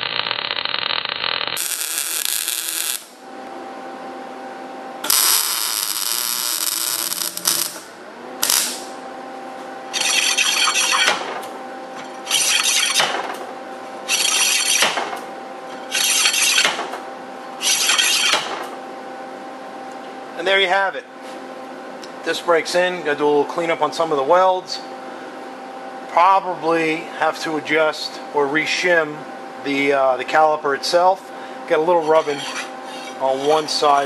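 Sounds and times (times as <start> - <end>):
welding arc crackling: 0.0 - 3.2, 5.0 - 9.0, 9.9 - 11.5, 14.1 - 15.2, 15.9 - 17.0
brake disc scraping against pad: 9.9 - 11.4, 31.9 - 34.0.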